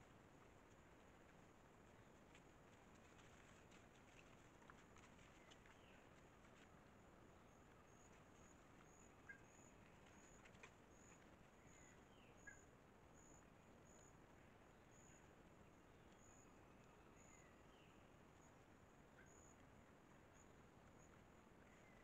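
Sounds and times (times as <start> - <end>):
bird chirps: 11.0 - 12.7.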